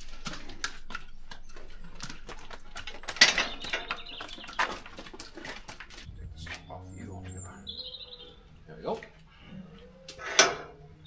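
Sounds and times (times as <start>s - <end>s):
boots on wet concrete: 0.0s - 6.7s
metal gate clattering: 2.8s - 4.2s, 10.2s - 10.8s.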